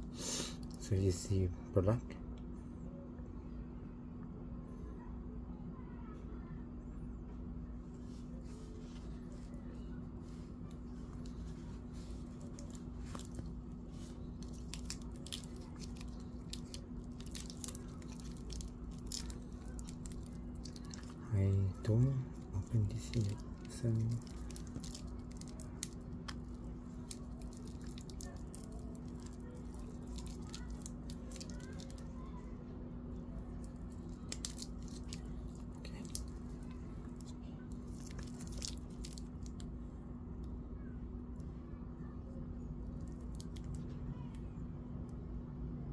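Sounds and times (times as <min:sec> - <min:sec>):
steady low hum: 0:00.0 - 0:45.9
plastic film crinkling: 0:08.1 - 0:32.5, 0:33.4 - 0:39.8, 0:42.8 - 0:44.0.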